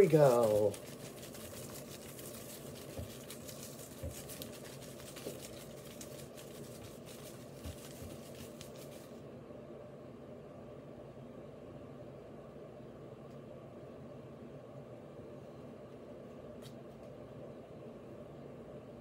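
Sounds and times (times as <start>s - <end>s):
paper rustling and crinkling: 0.0s - 9.2s.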